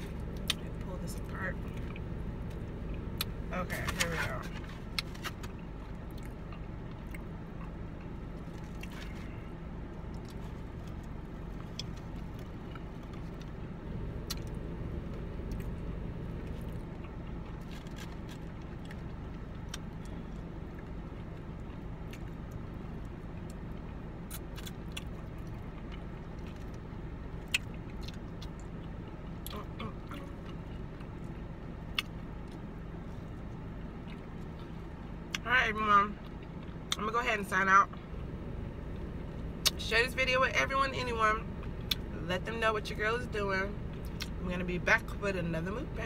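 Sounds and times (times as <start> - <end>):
low hum inside car: 0.0 - 46.0
chewing and biting food: 4.6 - 35.4.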